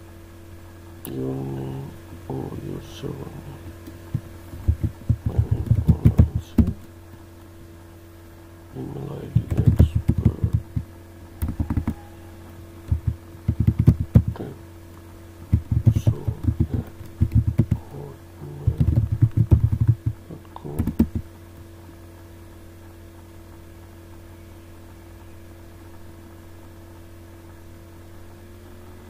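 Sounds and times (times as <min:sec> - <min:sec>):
low electrical hum: 0:00.0 - 0:29.0
computer keyboard typing: 0:04.6 - 0:06.9, 0:09.3 - 0:12.0, 0:12.9 - 0:14.5, 0:15.5 - 0:21.3.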